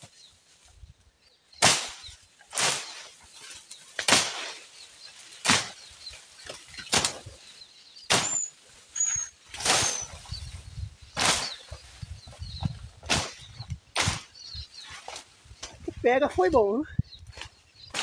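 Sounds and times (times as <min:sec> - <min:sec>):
blade swishing through brush: 0:01.6 - 0:04.7.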